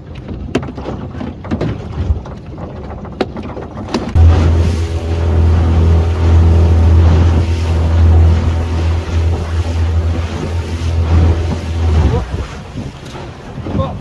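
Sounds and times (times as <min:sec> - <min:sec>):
outboard motor running: 0:03.9 - 0:13.6
water rushing past hull: 0:03.9 - 0:14.0
wind on microphone: 0:04.2 - 0:14.0.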